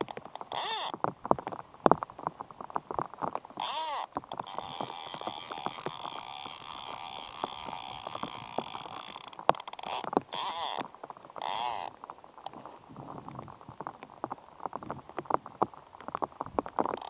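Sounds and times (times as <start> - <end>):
light rain on river: 0.0 - 17.0
fly reel ratchet buzzing: 3.6 - 10.8.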